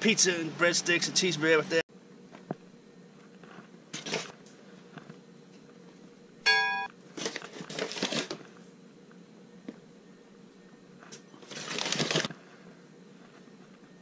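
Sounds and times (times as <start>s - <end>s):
short steady beep: 6.5s - 6.9s
flour scraping and rustling: 11.4s - 13.9s.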